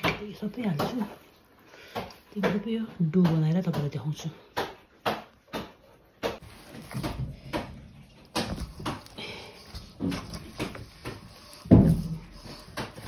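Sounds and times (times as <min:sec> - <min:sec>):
hand kneading dough in steel bowl: 0:06.3 - 0:13.0.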